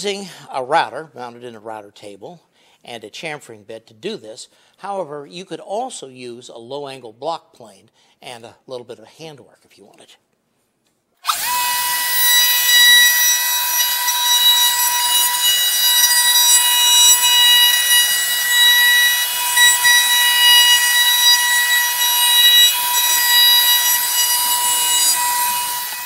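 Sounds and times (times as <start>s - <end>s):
router bit cutting wood: 11.2s - 26.0s
router whining: 11.2s - 26.0s.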